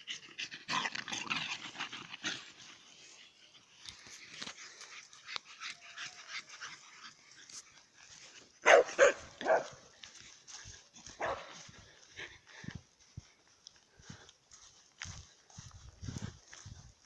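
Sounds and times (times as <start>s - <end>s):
dog barking: 8.6s - 9.8s, 11.2s - 11.6s.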